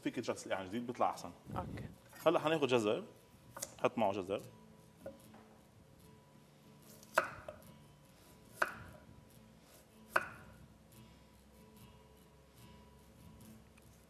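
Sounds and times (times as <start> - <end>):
knife slicing carrot: 6.8 - 10.7.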